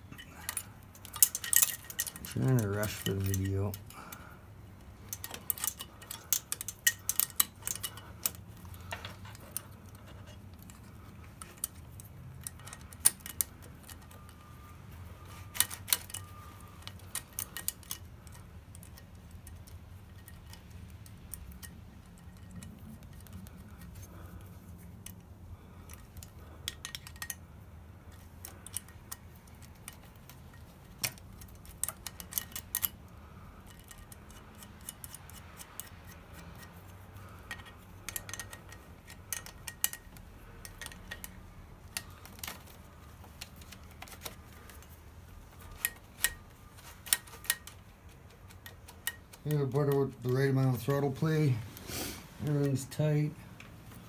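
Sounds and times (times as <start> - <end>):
wrench clicking on metal fittings: 0.4 - 4.2, 5.1 - 9.6, 28.1 - 33.0, 33.6 - 42.7.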